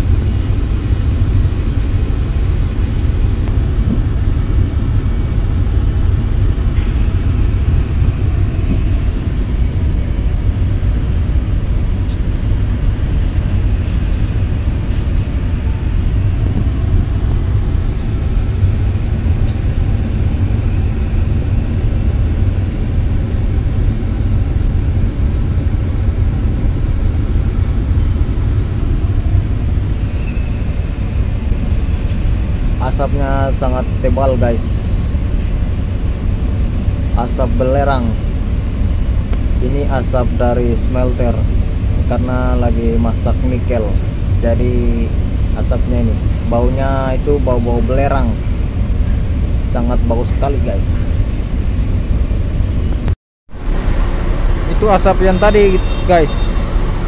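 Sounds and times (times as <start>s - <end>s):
faint high whine: 52.8s - 57.0s.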